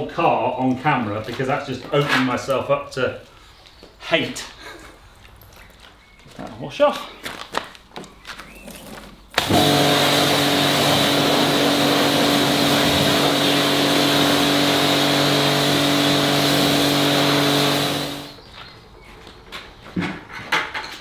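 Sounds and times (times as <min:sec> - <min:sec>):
pressure washer motor hum: 0:09.4 - 0:18.4
water jet hissing: 0:09.4 - 0:18.4.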